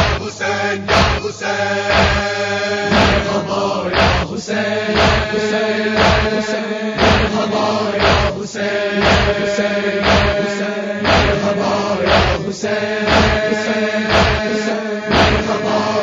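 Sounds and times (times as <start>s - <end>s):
chorus humming vocal drone: 0.0s - 16.0s
hands striking chest: 0.9s - 1.2s, 1.9s - 2.2s, 2.9s - 3.3s, 3.9s - 4.3s, 5.0s - 5.3s, 6.0s - 6.4s, 7.0s - 7.4s, 8.0s - 8.3s, 9.0s - 9.4s, 10.0s - 10.4s, 11.1s - 11.4s, 12.1s - 12.4s, 13.1s - 13.5s, 14.1s - 14.5s, 15.1s - 15.5s.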